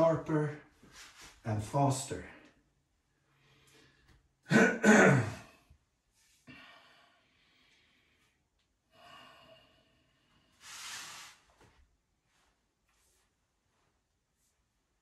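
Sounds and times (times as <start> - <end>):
breathing: 3.2 - 4.3, 6.3 - 11.2.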